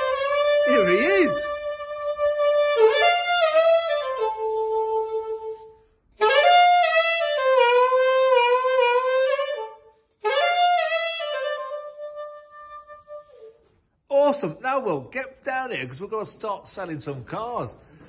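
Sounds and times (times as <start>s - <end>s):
solo saxophone melody: 0.0s - 13.7s.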